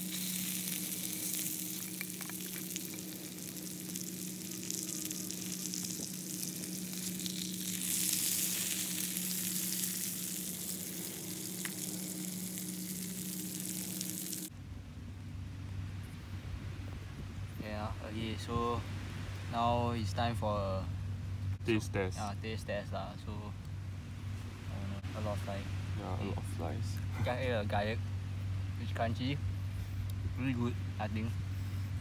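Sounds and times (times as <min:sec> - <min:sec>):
fish frying in butter: 0:00.0 - 0:14.5
low steady hum: 0:00.0 - 0:32.0.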